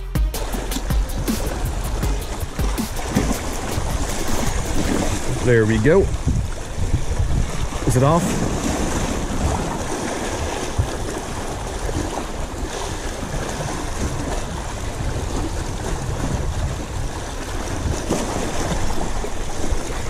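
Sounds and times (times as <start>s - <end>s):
sea waves washing against rocks: 0.4s - 20.0s
wind buffeting microphone: 0.4s - 20.0s.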